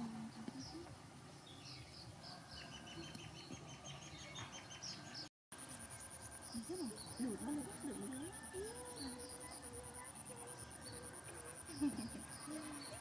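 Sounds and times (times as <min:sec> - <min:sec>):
insects: 0:00.0 - 0:13.0
small birds chirping: 0:00.0 - 0:13.0
high pulsing insect buzz: 0:05.6 - 0:13.0.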